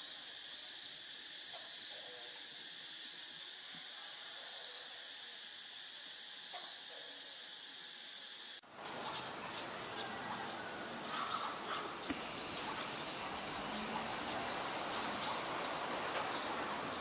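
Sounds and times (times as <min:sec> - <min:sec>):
high-pitched insect chorus: 0:00.0 - 0:17.0
small animal calls: 0:08.9 - 0:17.0.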